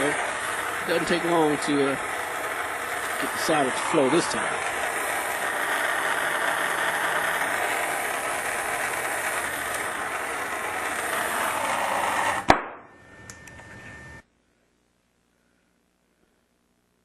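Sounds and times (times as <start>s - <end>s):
torch flame hissing: 0.0s - 12.6s
sharp pop of torch cutting off: 12.4s - 12.9s.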